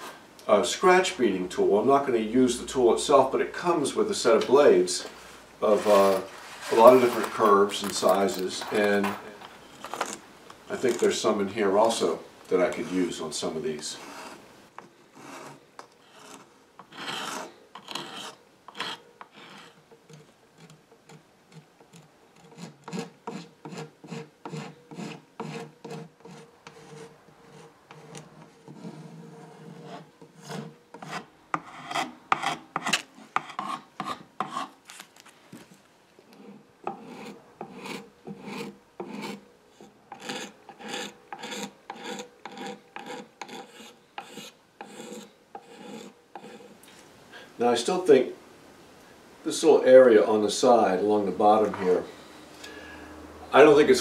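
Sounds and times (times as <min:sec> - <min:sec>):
hand scraper rasping on wood: 0:14.0 - 0:34.7, 0:36.4 - 0:46.8.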